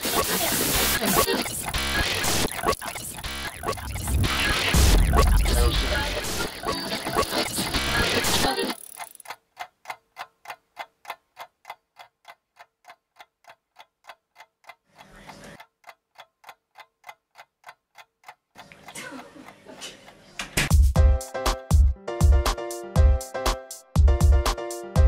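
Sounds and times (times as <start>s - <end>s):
clock ticking: 0.0s - 21.0s
rush of noise: 3.2s - 7.1s.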